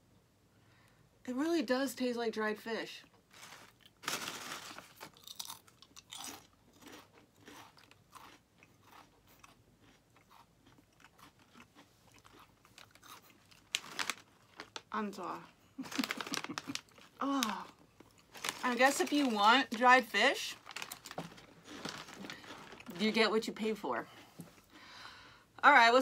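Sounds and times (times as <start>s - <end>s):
crunching and chewing snack: 3.4s - 19.8s, 20.5s - 23.0s.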